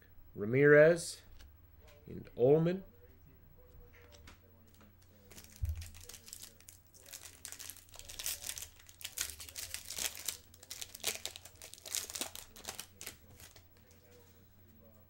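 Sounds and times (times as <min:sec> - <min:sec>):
foil wrapper crinkling and tearing: 0:05.2 - 0:13.9.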